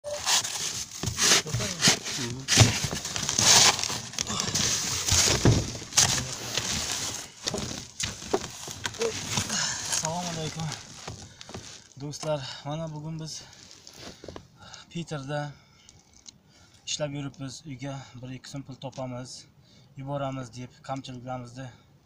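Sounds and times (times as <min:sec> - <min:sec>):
snow shovel scraping snow: 0:00.1 - 0:02.8.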